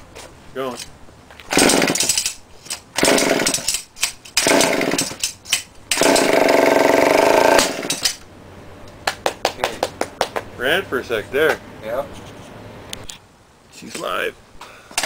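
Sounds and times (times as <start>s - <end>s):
small two-stroke engine sputtering: 3.0s - 3.7s, 4.4s - 5.2s, 5.9s - 8.0s.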